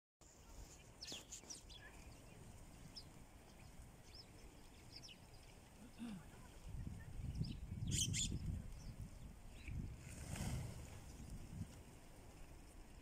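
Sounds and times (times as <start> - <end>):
sparrows chirping: 0.6 - 9.9.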